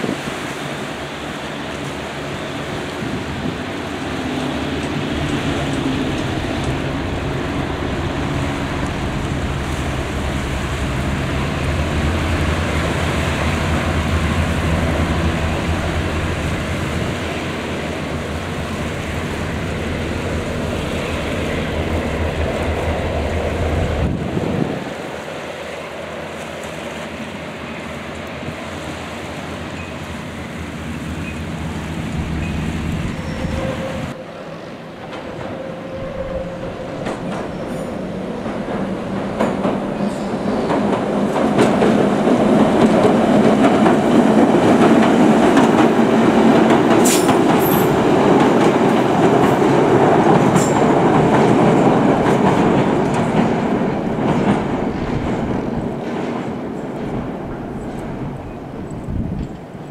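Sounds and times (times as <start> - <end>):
train running on track: 0.0 - 59.9
hovercraft humming: 1.0 - 26.1
metallic clicks of train wheels: 37.0 - 57.2.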